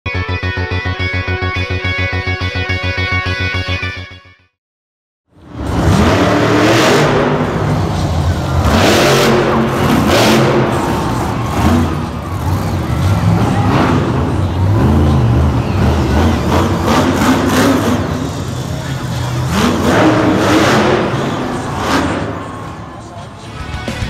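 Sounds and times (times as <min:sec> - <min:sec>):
truck engines revving: 0:05.3 - 0:24.0.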